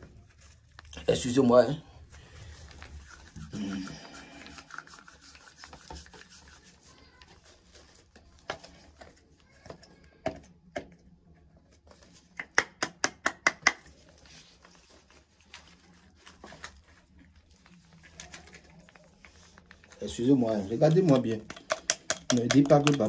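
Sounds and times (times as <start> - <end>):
hands handling small objects: 13.6 - 23.0.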